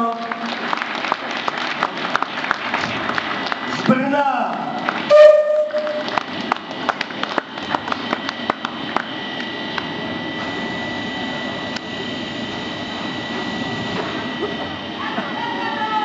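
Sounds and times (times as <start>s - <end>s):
people clapping: 0.0s - 9.9s.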